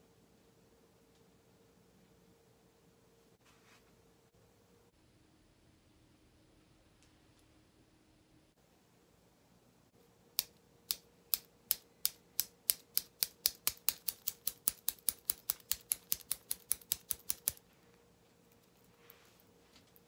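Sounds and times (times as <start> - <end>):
fingers snapping: 10.4 - 17.6.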